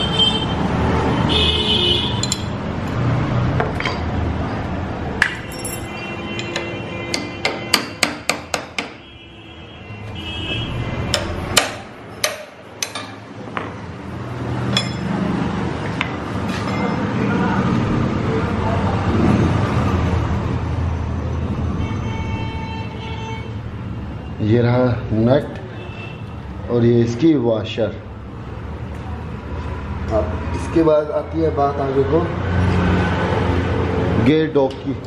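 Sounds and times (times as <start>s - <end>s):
hammer striking metal spanner: 2.2s - 2.6s, 5.2s - 9.0s, 11.1s - 13.7s, 14.7s - 15.2s.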